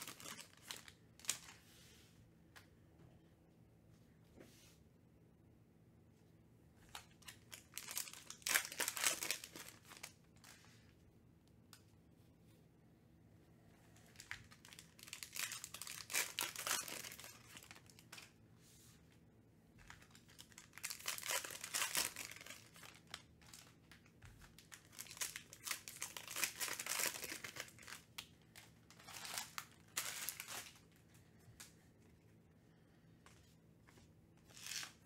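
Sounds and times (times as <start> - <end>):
foil wrappers crinkling and tearing: 0.0 - 1.6, 6.9 - 10.6, 14.1 - 18.3, 19.9 - 31.0, 34.4 - 35.0.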